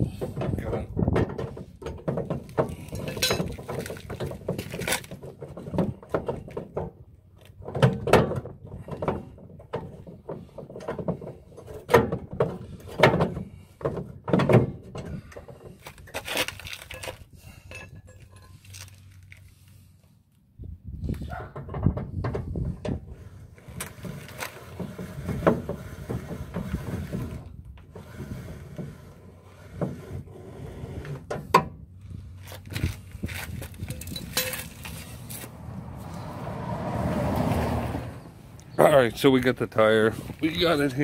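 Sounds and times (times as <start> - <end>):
metallic clanks of hand tools: 1.9 - 5.1, 33.9 - 35.1.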